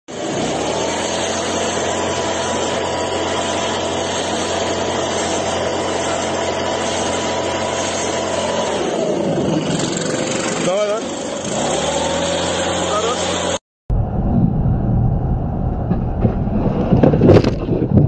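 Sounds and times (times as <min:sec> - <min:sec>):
motor running with high whine: 0:00.1 - 0:13.6.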